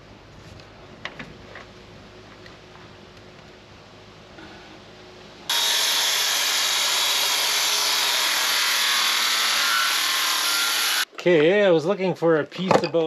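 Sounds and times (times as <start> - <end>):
circular saw cutting plywood: 5.5 - 11.0.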